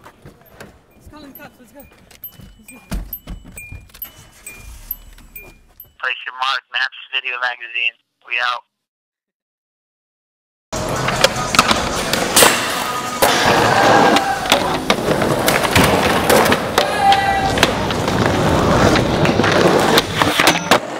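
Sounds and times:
skateboard wheels rolling on concrete: 13.2 - 20.9
skateboards clacking and snapping: 13.2 - 20.9.

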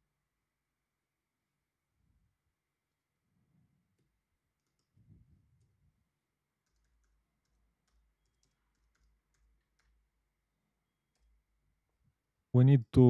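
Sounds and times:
computer keyboard typing: 4.6 - 5.0, 6.6 - 10.4, 11.0 - 11.6.

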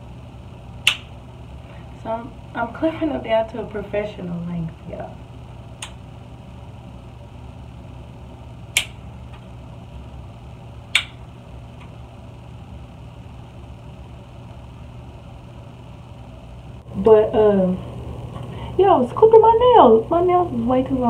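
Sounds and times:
steady low hum: 0.0 - 21.0
nail clippers clicking: 8.8 - 9.0.

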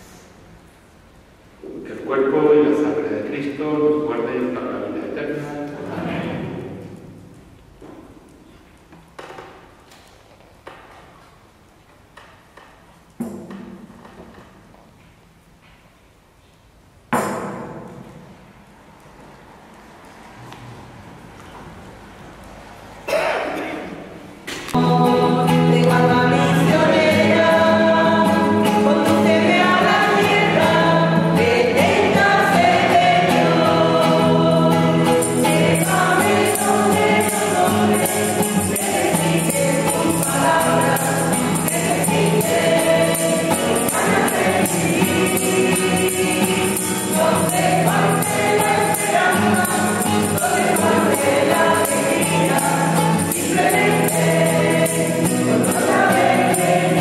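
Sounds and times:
choir singing a hymn: 24.8 - 57.0
tambourine shaking: 24.9 - 57.0.

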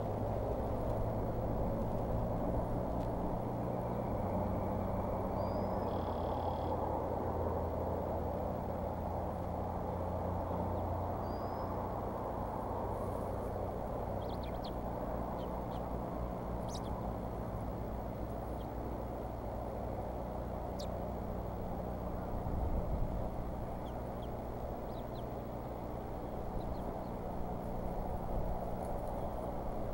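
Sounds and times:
outdoor background rumble: 0.0 - 29.9
faint high bird chirps: 5.3 - 6.8, 10.7 - 11.8, 14.2 - 15.9, 16.6 - 17.0, 20.7 - 21.0, 23.8 - 25.4.

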